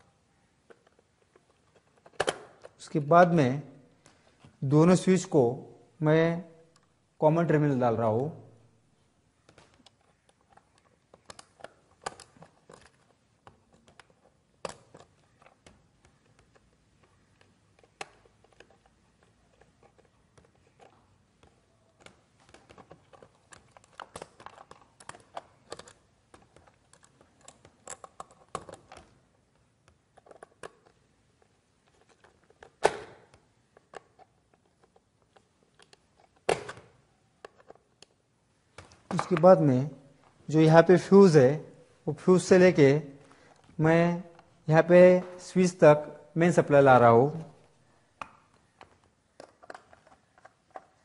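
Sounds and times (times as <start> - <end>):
wire clicks taps and rustles: 9.4 - 40.4.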